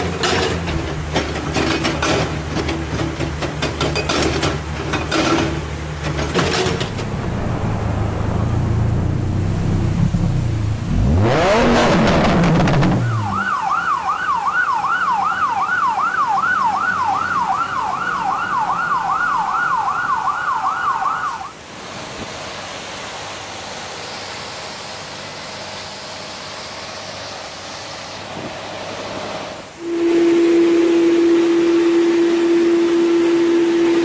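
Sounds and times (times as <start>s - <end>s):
steady rushing noise: 5.7s - 13.5s
car engine revving: 6.8s - 13.5s
fire engine siren wailing: 12.6s - 21.6s, 29.8s - 34.0s.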